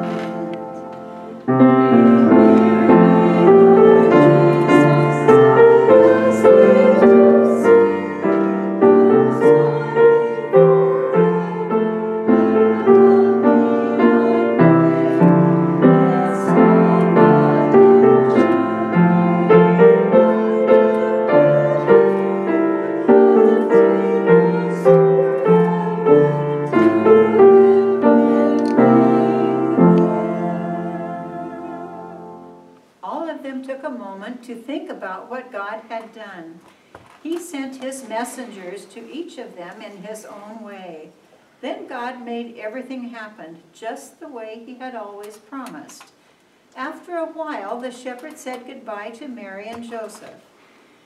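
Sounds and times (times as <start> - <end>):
slow gentle piano melody: 0.0 - 32.8.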